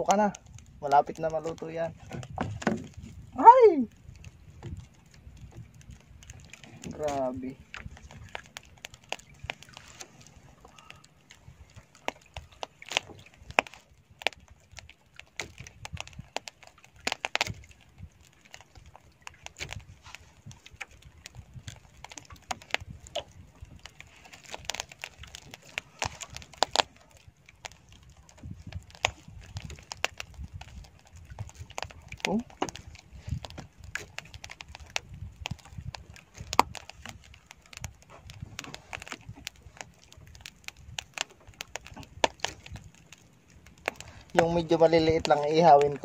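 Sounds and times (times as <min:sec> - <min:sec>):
embers crackling and popping: 0:00.0 - 0:46.0.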